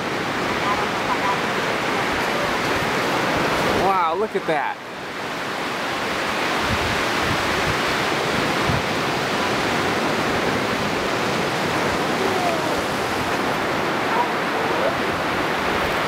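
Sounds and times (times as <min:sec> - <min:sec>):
ocean surf breaking: 0:00.0 - 0:16.0.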